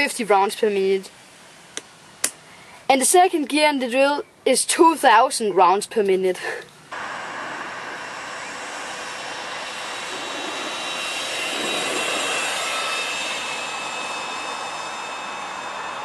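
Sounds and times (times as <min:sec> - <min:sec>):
drill motor whine: 0:06.9 - 0:16.0
wheels rumbling on asphalt: 0:06.9 - 0:16.0.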